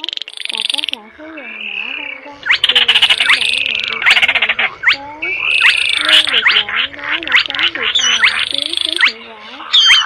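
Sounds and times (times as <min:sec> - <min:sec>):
frog-like croaks: 0:00.0 - 0:10.0
wavering low tone: 0:00.4 - 0:09.2
bird rattling trills: 0:02.4 - 0:09.2.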